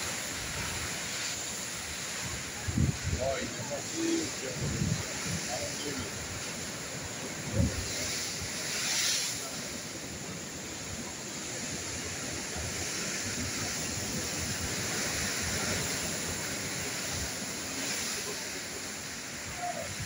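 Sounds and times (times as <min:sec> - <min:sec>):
waves breaking on concrete blocks: 0:00.0 - 0:20.0
wind buffeting microphone: 0:01.9 - 0:08.9.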